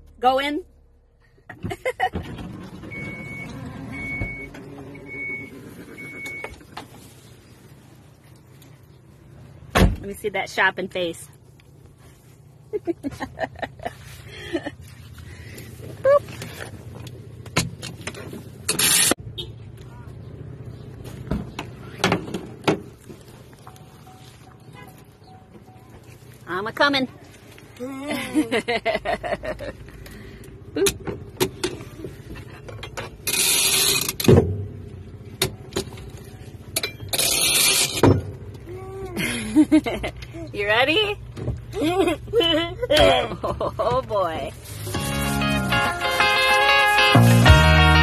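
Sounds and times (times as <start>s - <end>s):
warning beeps: 2.9s - 6.6s.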